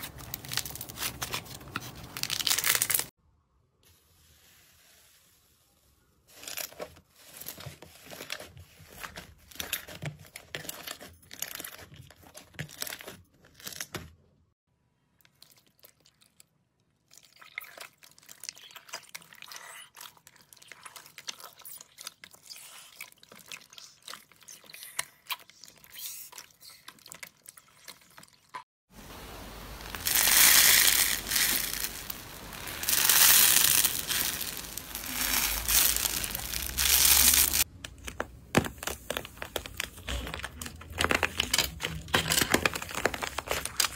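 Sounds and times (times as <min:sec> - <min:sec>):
slime crackling and popping: 0:00.0 - 0:03.1, 0:29.2 - 0:43.9
wet squishing of jelly cubes: 0:06.4 - 0:14.2, 0:15.0 - 0:28.6, 0:29.2 - 0:43.9
slime crunching when squeezed: 0:29.8 - 0:37.7.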